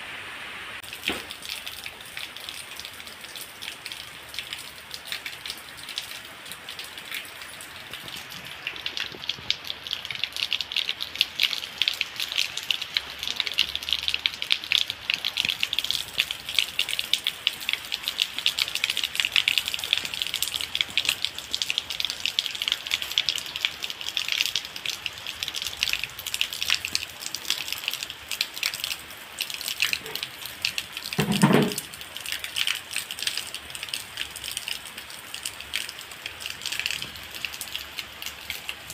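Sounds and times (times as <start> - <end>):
heavy rain on leaves: 0.0 - 38.9
water splashing into plastic bucket: 31.1 - 32.0.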